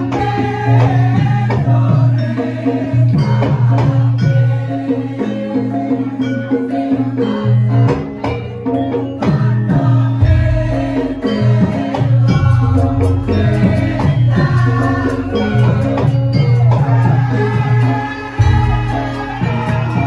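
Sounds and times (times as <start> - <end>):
gamelan music: 0.0 - 20.0
person singing: 9.4 - 20.0.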